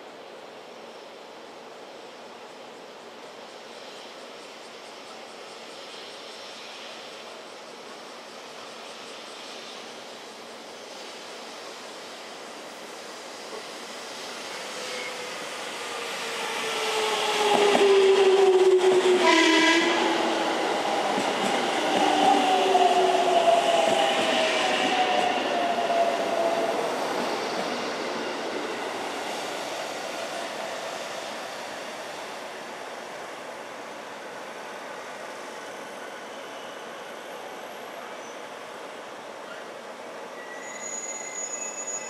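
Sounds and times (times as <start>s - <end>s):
train horn blast: 18.7s - 20.1s.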